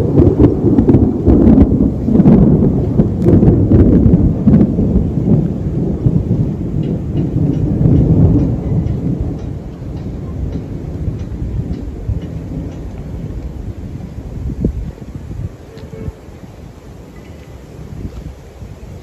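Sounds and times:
light rain: 0.0s - 19.0s
rolling thunder: 0.0s - 19.0s.

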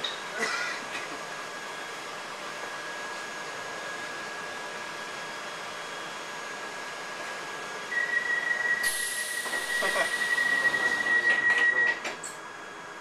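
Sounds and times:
air hissing: 8.8s - 11.1s
sliding doors running shut: 8.9s - 12.3s.

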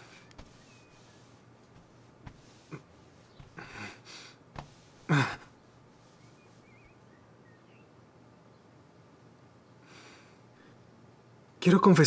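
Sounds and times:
bedclothes rustling: 0.0s - 7.0s
man sighing heavily: 3.5s - 4.4s, 5.0s - 5.5s
soft knocks: 4.5s - 5.1s.

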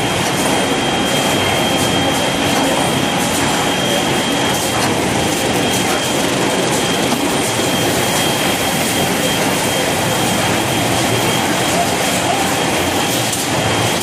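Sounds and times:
mechanical clatter of conveyors: 0.0s - 14.0s
thin high whine: 0.0s - 14.0s.

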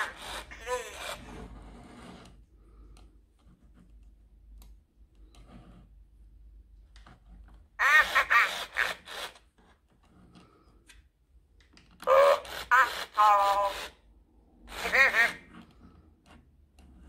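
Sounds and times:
electronic toy voice chirping: 0.0s - 1.2s, 7.8s - 9.3s, 12.0s - 14.0s, 14.7s - 15.5s
small toy motor whirring: 0.0s - 2.2s, 7.8s - 9.5s, 12.0s - 15.9s.

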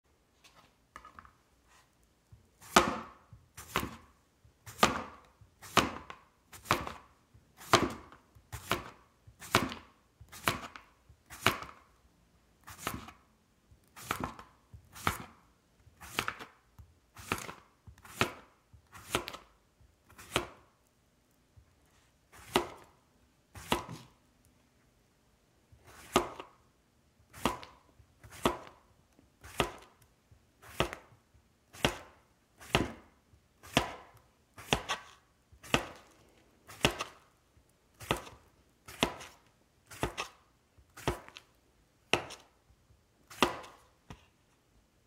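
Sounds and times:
knife slicing cucumber on board: 2.6s - 4.1s, 23.6s - 24.1s, 30.6s - 31.1s, 31.7s - 36.1s, 36.7s - 37.2s, 38.0s - 40.4s.

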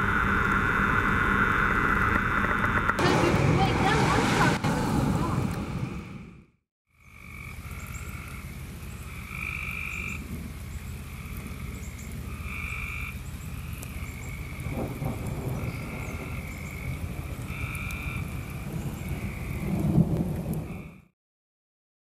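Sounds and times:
steady low rumble: 0.0s - 6.6s
frogs calling: 6.9s - 21.1s.

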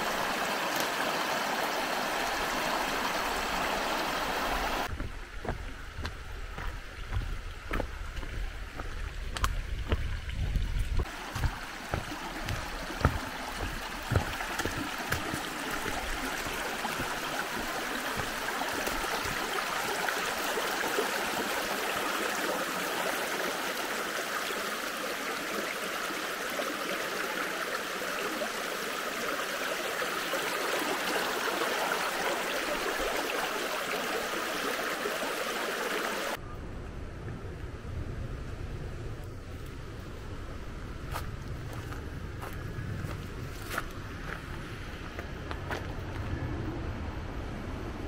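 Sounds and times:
stream babbling over stones: 0.0s - 36.4s.

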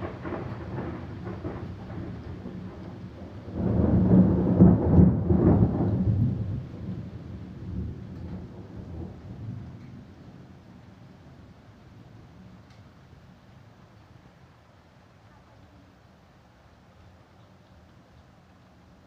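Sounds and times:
thunder rumbling: 0.0s - 13.8s.

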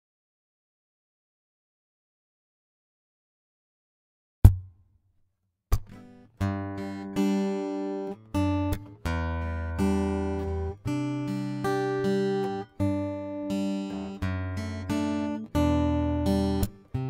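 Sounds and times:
fingerpicked steel-string guitar chords: 5.8s - 17.0s.

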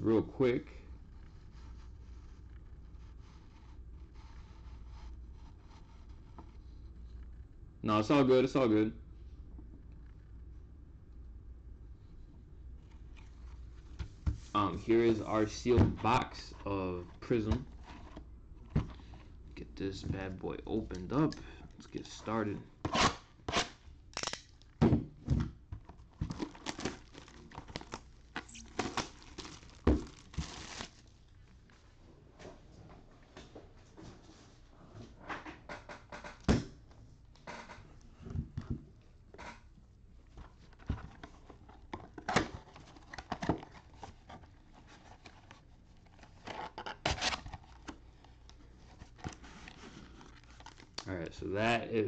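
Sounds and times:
plastic wrap crackling: 26.0s - 31.4s
cardboard tearing: 26.3s - 31.0s.

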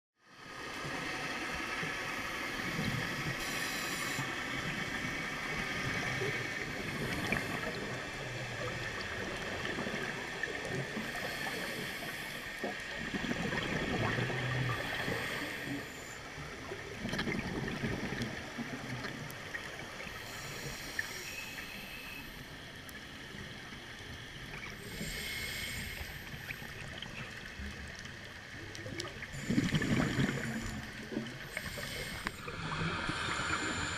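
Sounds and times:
muffled water hiss: 0.2s - 33.9s
bubbles gurgling: 12.9s - 15.2s, 16.6s - 19.3s, 28.8s - 31.4s.

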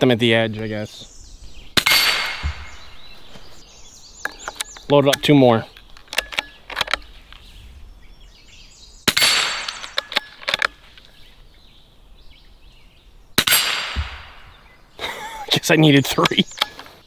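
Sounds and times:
rifle shots: 1.7s - 3.2s, 9.1s - 10.4s, 13.4s - 14.5s
rifle handling clicks: 4.3s - 7.4s, 9.7s - 11.2s.

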